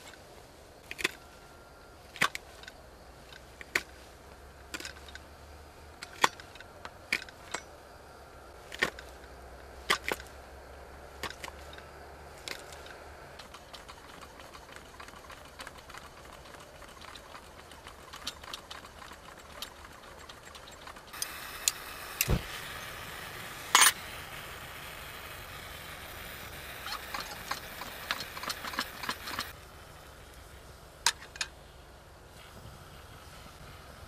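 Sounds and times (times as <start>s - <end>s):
metallic clicks and rattles: 2.1s - 7.8s, 11.1s - 21.8s, 26.7s - 29.6s, 31.0s - 31.6s
gas hissing: 21.1s - 30.8s.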